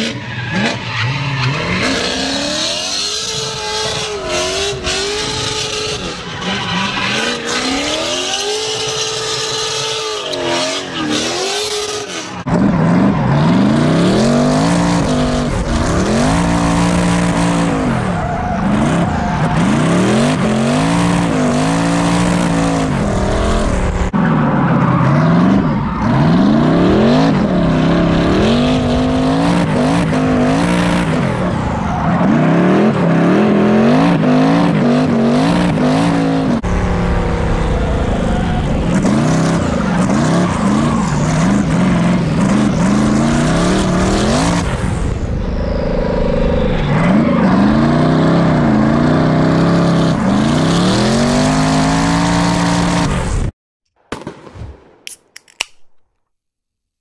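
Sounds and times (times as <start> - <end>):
tyre squeal: 0.0 - 12.4
car engine revving: 0.0 - 45.2, 45.8 - 53.4.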